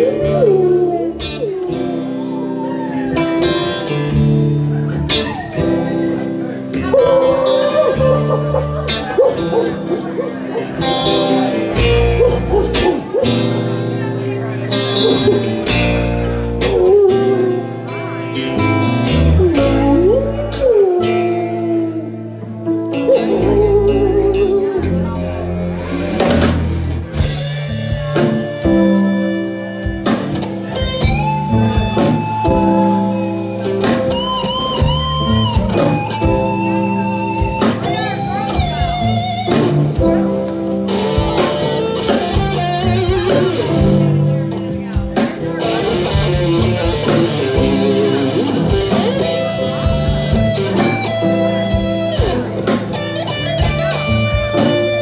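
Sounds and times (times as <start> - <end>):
electric guitar: 0.0 - 55.0
keyboards: 0.0 - 55.0
drum kit beat: 2.8 - 14.0, 26.1 - 55.0.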